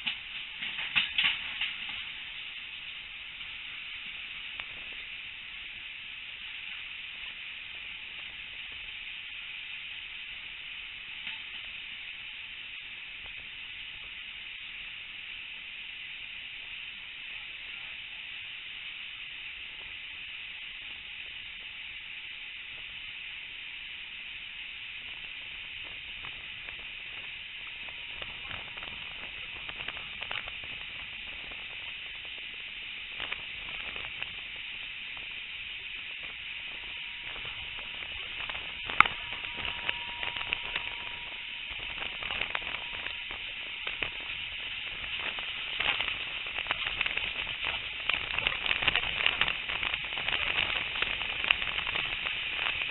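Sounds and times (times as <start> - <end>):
clicks and crackles: 0.0 - 5.2, 25.0 - 52.9
train rushing at speed: 35.8 - 52.8.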